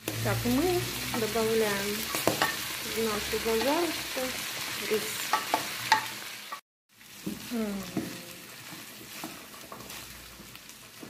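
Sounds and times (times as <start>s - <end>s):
rice sizzling in frying pan: 0.0s - 11.0s
wooden spoon scraping pan: 8.6s - 11.0s.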